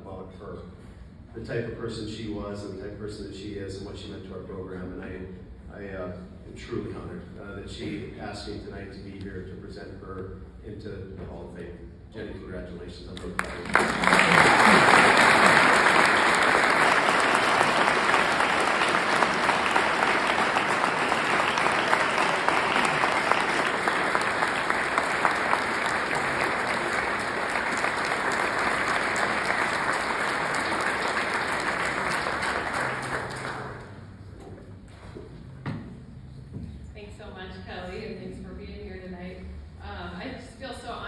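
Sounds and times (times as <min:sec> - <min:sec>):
audience applauding: 0:13.2 - 0:34.1.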